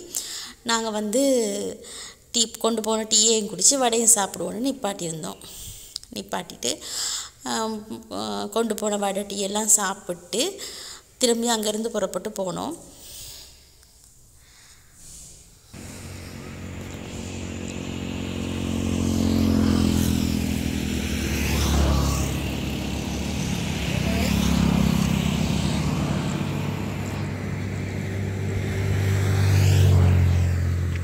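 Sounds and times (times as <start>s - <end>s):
motor vehicles passing close: 15.8s - 31.0s.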